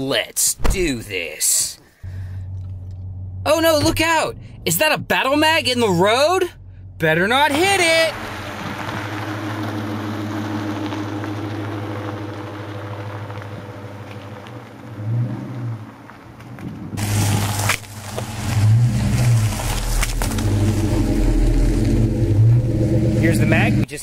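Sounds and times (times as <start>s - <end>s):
car engine running: 2.1s - 15.1s, 17.0s - 23.9s
tyres crunching gravel: 7.0s - 23.7s.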